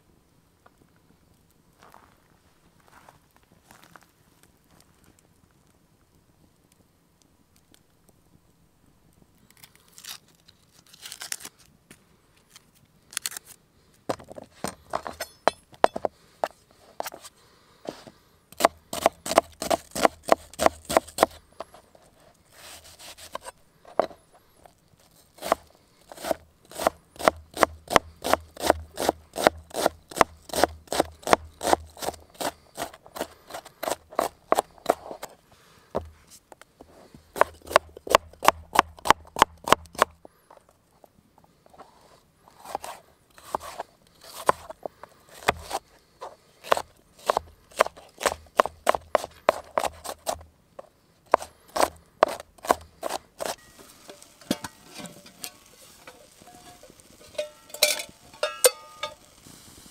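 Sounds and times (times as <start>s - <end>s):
knife chopping on cutting board: 18.6s - 21.4s, 26.2s - 32.5s, 46.6s - 50.4s, 51.3s - 53.6s.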